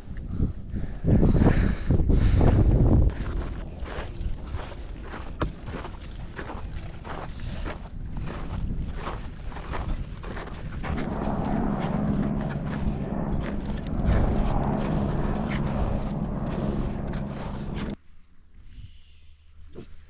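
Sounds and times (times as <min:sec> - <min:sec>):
wind buffeting microphone: 0:00.0 - 0:18.0
footsteps crunching in snow: 0:03.1 - 0:18.0.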